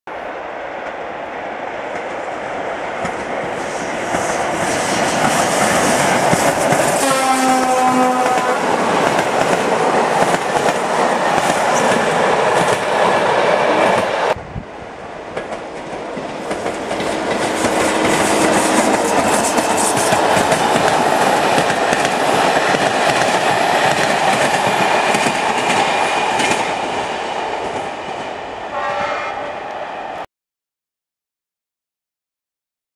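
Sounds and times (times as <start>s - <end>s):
train rumble: 0.8s - 30.2s
train horn: 7.0s - 8.8s, 28.7s - 29.6s.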